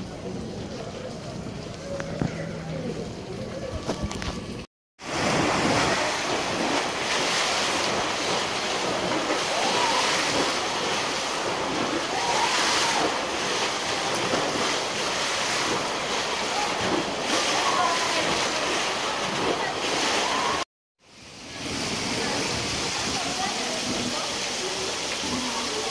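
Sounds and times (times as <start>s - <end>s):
distant voices: 0.0s - 20.6s
waves splashing in pool: 5.0s - 25.9s.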